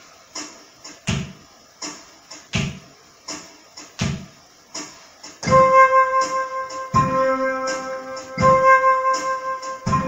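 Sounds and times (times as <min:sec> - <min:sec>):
slow drum beat: 0:00.3 - 0:10.0
held electric keyboard chord: 0:05.4 - 0:10.0.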